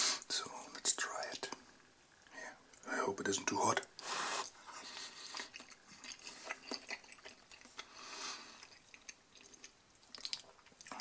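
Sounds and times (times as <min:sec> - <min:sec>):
person chewing food: 0:04.0 - 0:11.0
soft breath: 0:07.8 - 0:08.8.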